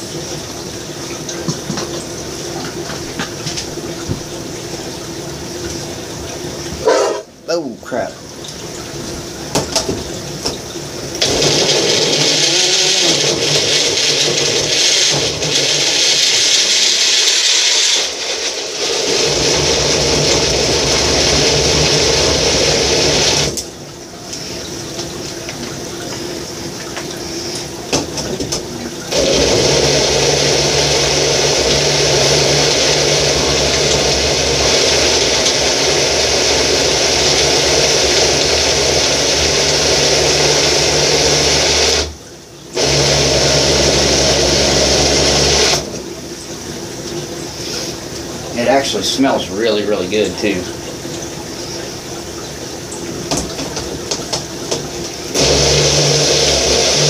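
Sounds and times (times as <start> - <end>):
blender motor grinding: 11.2 - 23.6, 29.1 - 42.1, 42.8 - 46.0, 55.3 - 57.0.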